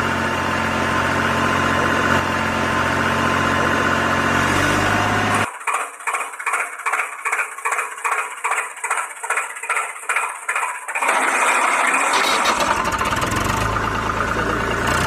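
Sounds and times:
engine running with low rumble: 0:00.0 - 0:05.5, 0:12.2 - 0:15.0
engine chugging: 0:00.0 - 0:15.0.

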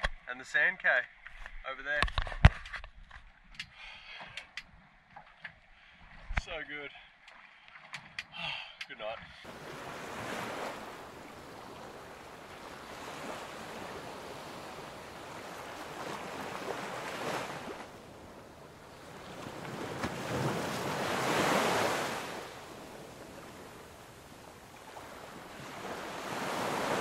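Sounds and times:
sea waves washing in: 0:09.4 - 0:27.0.

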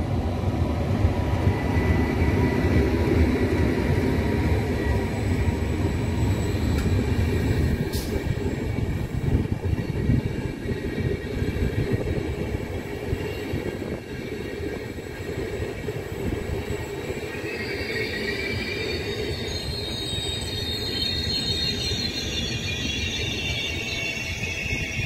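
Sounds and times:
train wheels rumbling on rails: 0:00.0 - 0:25.0
metallic wheel squeal: 0:01.8 - 0:09.0, 0:16.6 - 0:25.0.

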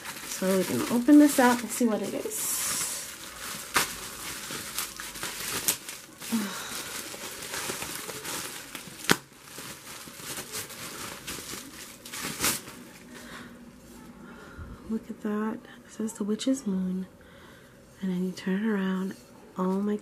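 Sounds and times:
bubble wrap crinkling: 0:00.0 - 0:13.4.

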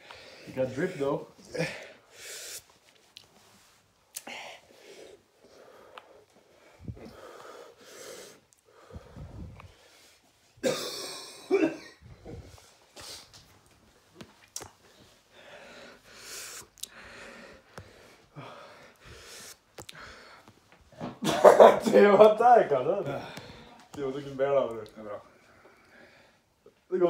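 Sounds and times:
man breathing hard: 0:04.2 - 0:10.2, 0:15.0 - 0:20.6, 0:23.1 - 0:23.9
man coughing: 0:10.6 - 0:12.0, 0:21.2 - 0:22.1.

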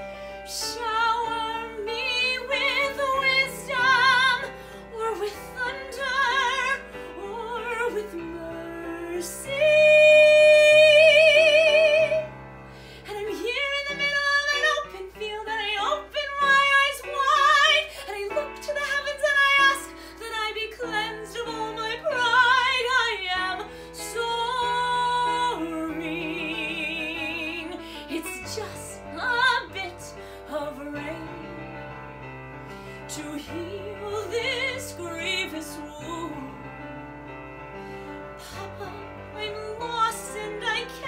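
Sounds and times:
woman singing a ballad: 0:00.0 - 0:12.4, 0:13.0 - 0:32.0, 0:33.0 - 0:37.0, 0:38.4 - 0:41.0
soft instrumental accompaniment: 0:00.0 - 0:41.0.

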